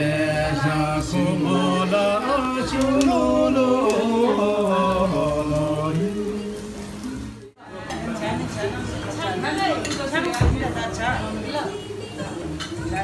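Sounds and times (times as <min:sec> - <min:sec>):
man singing slow song: 0:00.0 - 0:07.2.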